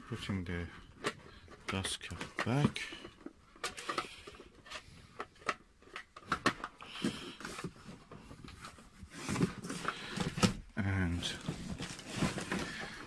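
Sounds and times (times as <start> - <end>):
handling clicks and knocks: 0.9 - 4.4.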